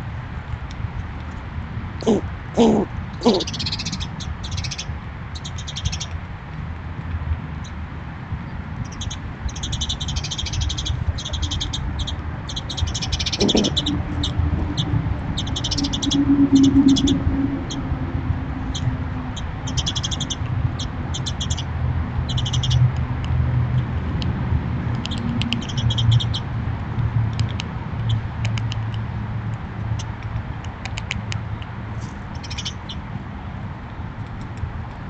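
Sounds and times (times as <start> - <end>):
small animal clicking chirps: 8.9 - 14.4, 24.9 - 26.4, 27.3 - 29.0, 30.0 - 31.7.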